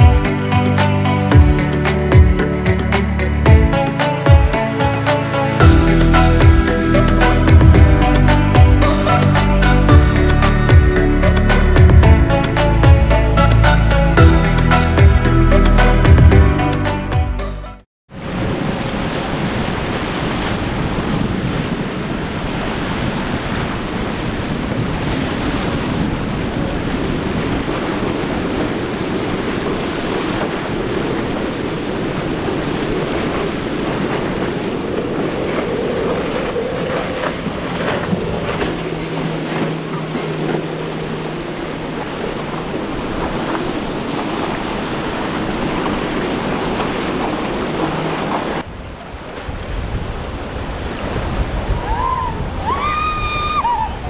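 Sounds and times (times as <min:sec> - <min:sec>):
boat engine drone: 0:00.0 - 0:16.4, 0:18.4 - 0:48.7
surf and waves washing: 0:00.0 - 0:17.1, 0:18.1 - 0:54.0
wind buffeting microphone: 0:18.2 - 0:54.0.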